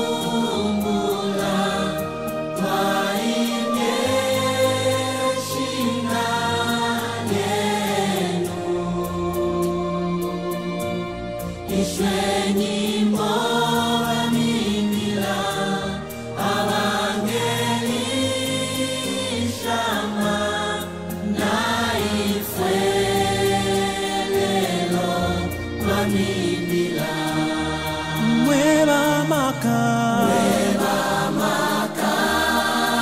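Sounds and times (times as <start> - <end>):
choir singing gospel song: 0.0 - 33.0.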